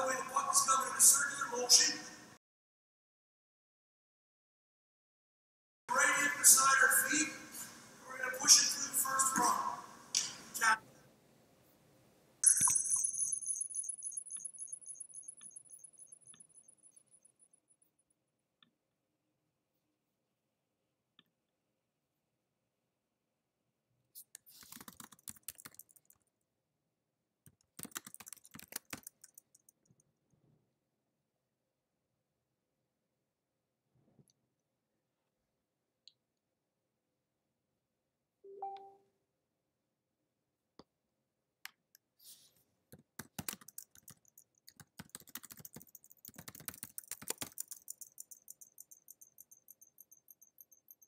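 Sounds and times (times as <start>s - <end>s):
typing on computer keyboard: 24.4s - 26.3s, 27.5s - 30.1s, 43.0s - 51.0s.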